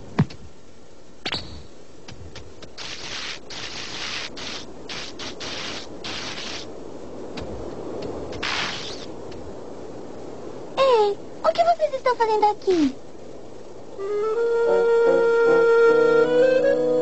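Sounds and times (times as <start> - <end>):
scraping and rubbing noises: 2.6 - 6.7, 8.3 - 9.1.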